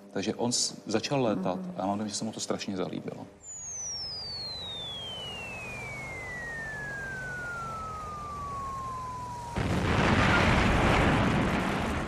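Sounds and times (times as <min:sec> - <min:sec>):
falling bomb whistle: 0:03.4 - 0:11.2
explosion blast: 0:09.4 - 0:12.0.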